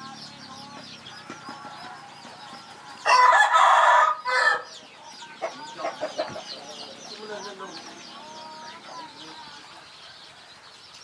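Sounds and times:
small birds chirping: 0.0 - 11.0
rooster crowing: 3.0 - 4.8.

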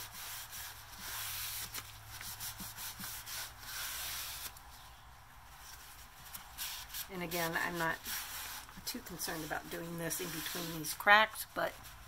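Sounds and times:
cloth rag rubbing wood: 0.0 - 4.6, 5.6 - 11.1.

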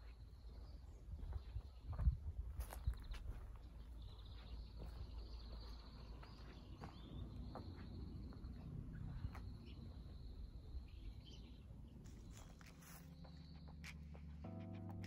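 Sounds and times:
footsteps on gravel: 1.2 - 7.8, 12.0 - 14.5.

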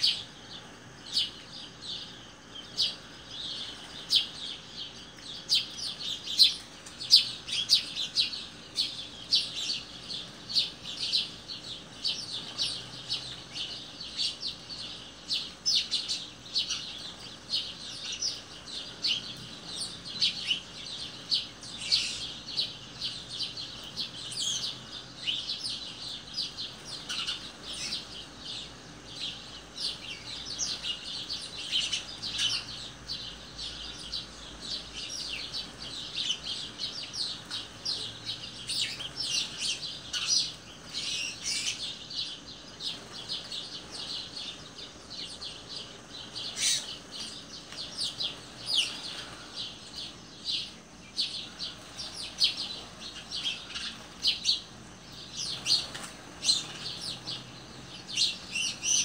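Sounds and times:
songbirds chirping and twittering: 0.0 - 59.0.

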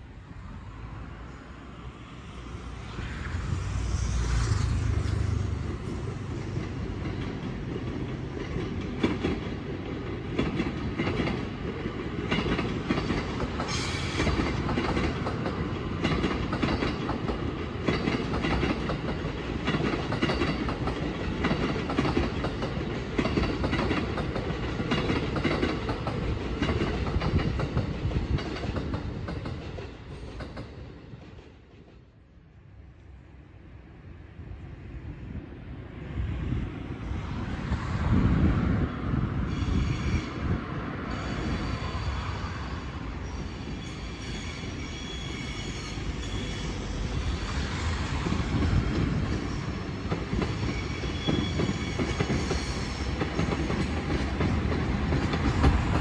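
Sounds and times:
train wheels clattering over rails: 4.1 - 32.0, 45.5 - 56.0.

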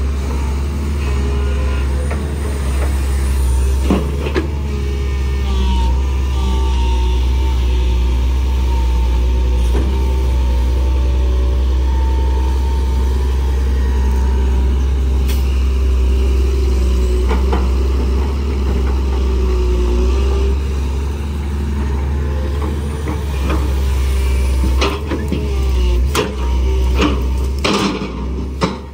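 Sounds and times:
diesel engine humming: 0.0 - 28.9
hydraulic pump whine: 0.0 - 28.9.

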